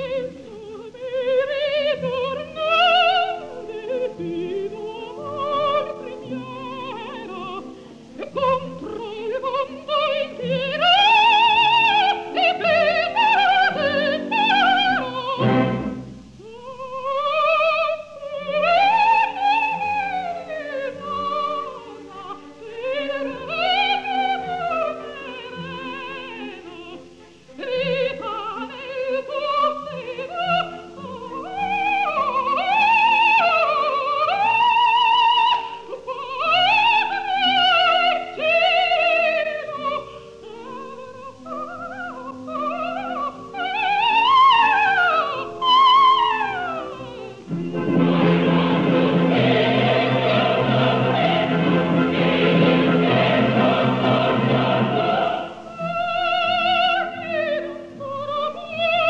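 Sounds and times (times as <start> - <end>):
operatic soprano singing: 0.0 - 59.0
orchestra playing: 13.6 - 16.4, 47.4 - 56.0.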